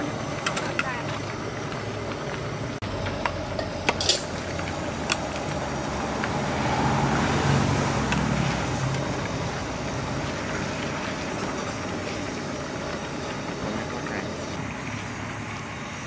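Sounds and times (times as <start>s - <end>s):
background traffic rumble: 0.0s - 16.0s
metal ladle clinking in pot: 3.6s - 4.3s.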